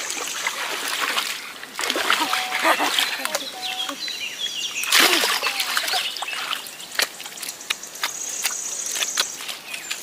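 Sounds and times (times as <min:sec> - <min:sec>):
water trickling and splashing: 0:00.0 - 0:10.0
wet mud slapping and squelching: 0:04.8 - 0:10.0.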